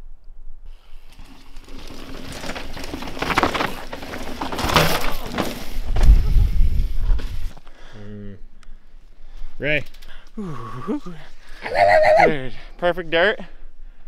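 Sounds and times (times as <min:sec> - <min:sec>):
bike tyres skidding through dirt: 0:00.7 - 0:07.6
low rumble of passing bike: 0:00.7 - 0:07.6.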